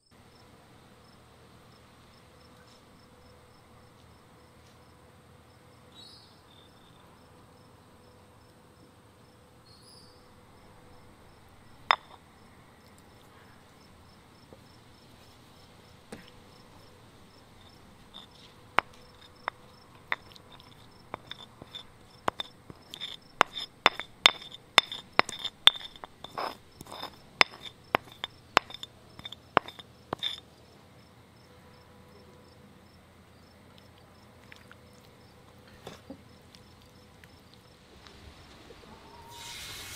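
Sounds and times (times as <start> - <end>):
crickets chirping: 0.3 - 39.9
spoon clinking and scraping bowl: 11.9 - 12.2, 17.6 - 30.4.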